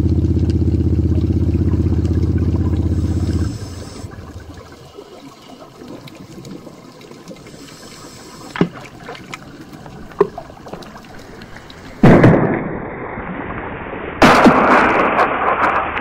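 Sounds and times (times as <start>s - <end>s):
steady rumble: 0.0s - 12.2s
faint underwater hiss: 2.4s - 12.0s
underwater explosion blast: 11.5s - 16.0s.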